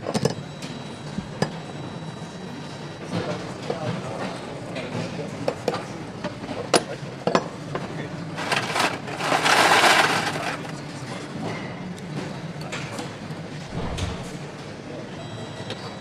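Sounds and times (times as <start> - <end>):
steady machine hum: 13.6 - 14.7
loud rushing hiss: 13.7 - 14.5.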